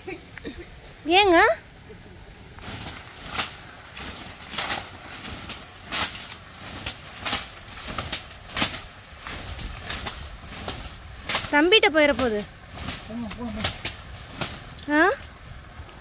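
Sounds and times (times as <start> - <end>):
leafy branch swishing: 0.0 - 16.0.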